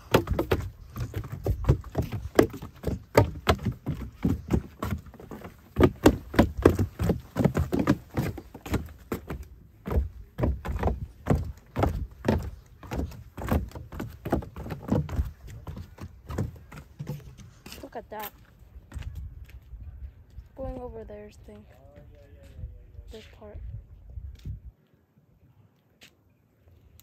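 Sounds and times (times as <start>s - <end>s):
footsteps on wooden stairs: 0.0s - 19.2s.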